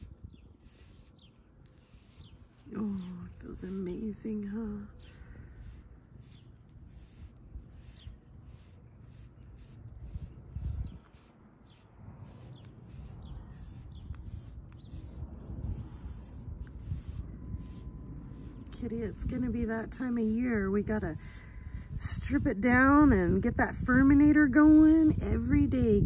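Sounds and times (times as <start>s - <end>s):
comb scratching through cat fur: 0.7s - 5.9s, 7.0s - 21.4s.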